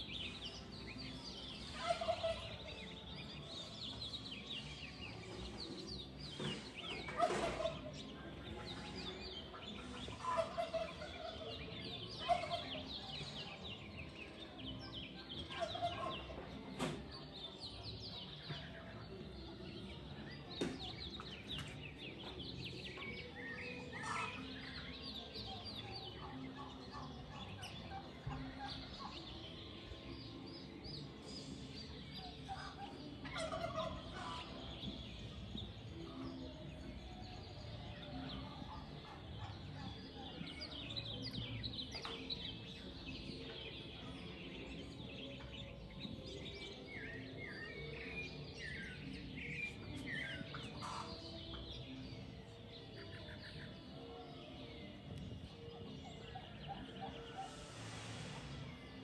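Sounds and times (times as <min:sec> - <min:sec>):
birds chirping: 0:00.0 - 0:59.0.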